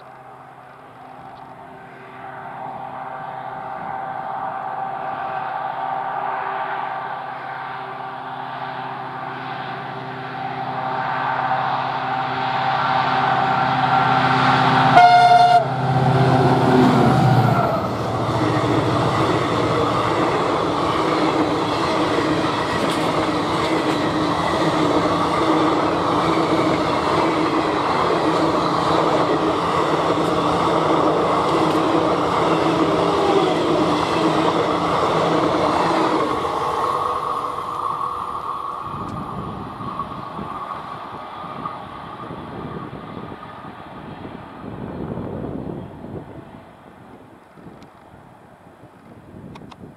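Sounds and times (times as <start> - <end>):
locomotive horn: 0.0 - 38.4
train coaches clattering past: 0.0 - 49.2
diesel locomotive engine passing: 0.0 - 49.7.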